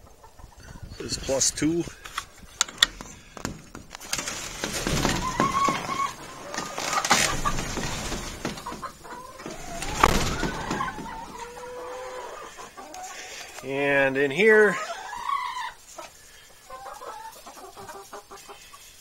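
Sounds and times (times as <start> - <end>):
hens clucking: 0.0 - 19.0
knocks and rustles: 2.0 - 11.6.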